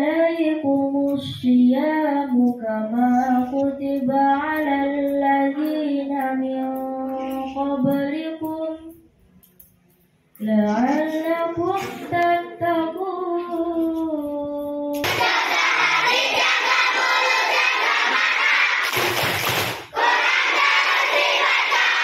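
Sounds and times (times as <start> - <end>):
girl chanting melodic recitation: 0.0 - 9.0, 10.4 - 15.0.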